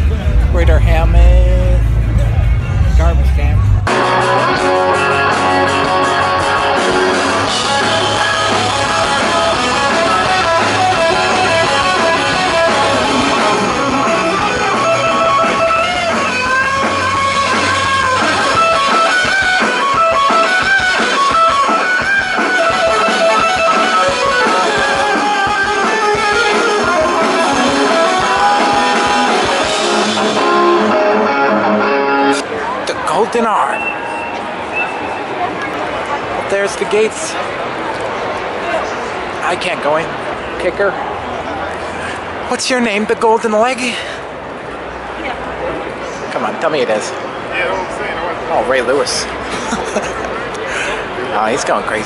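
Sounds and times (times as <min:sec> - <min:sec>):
deep bass: 0:00.0 - 0:06.6
drum kit: 0:00.0 - 0:32.4
electric guitars: 0:00.0 - 0:39.4.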